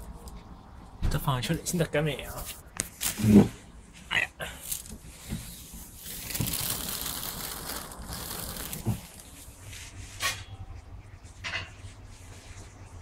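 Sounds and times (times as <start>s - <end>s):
crinkling rustling: 2.3s - 3.7s, 4.6s - 10.0s.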